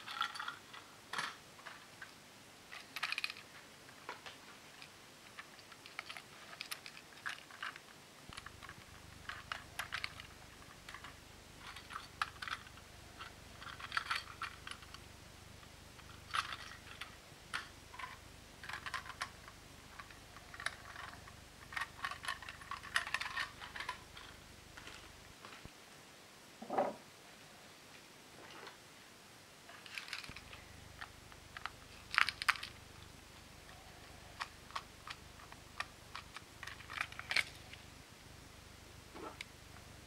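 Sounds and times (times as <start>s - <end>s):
plastic toy train clicks: 2.7s - 3.4s, 4.8s - 15.0s, 16.0s - 19.4s, 20.0s - 24.3s, 29.8s - 32.8s, 34.4s - 37.6s.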